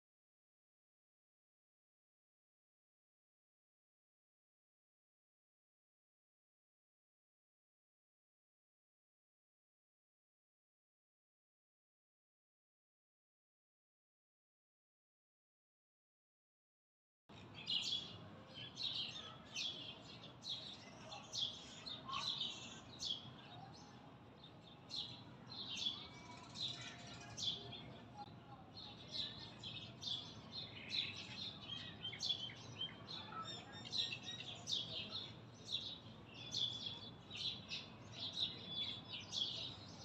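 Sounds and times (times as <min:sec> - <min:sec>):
small birds chirping: 0:17.3 - 0:40.0.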